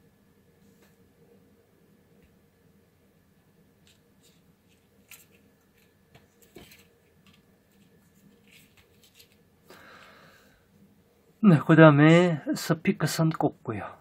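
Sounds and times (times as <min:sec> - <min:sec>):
wires and connectors handled: 0:03.8 - 0:09.5.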